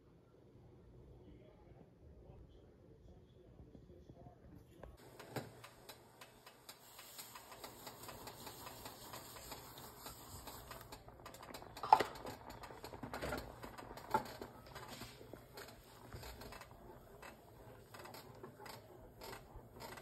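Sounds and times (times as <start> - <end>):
grains pouring into a pot: 6.8 - 16.5.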